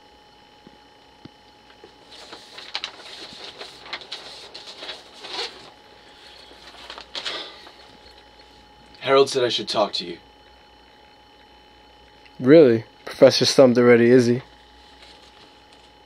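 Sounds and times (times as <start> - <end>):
faint electrical hum: 0.0 - 16.0
rustling and shuffling handling noises: 1.7 - 8.7, 14.2 - 16.0.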